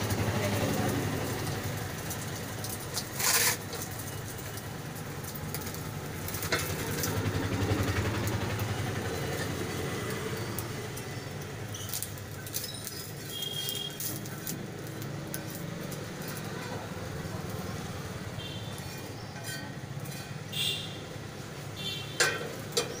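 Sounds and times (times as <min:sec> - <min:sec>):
metal spatula scraping iron griddle: 0:02.7 - 0:04.6, 0:11.7 - 0:16.8, 0:18.5 - 0:21.1
short high squeaks: 0:11.7 - 0:14.3.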